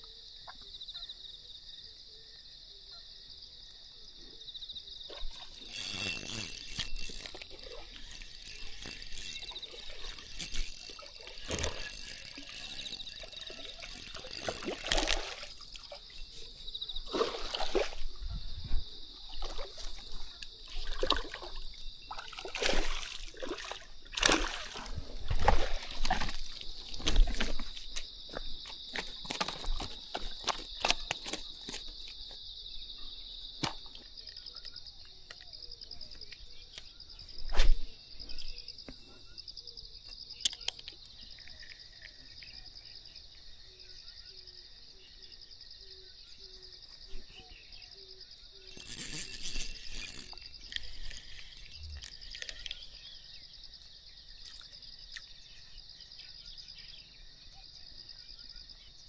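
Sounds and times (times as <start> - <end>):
high insect chirr: 0.0 - 59.0
fish flopping on dirt: 5.1 - 32.2.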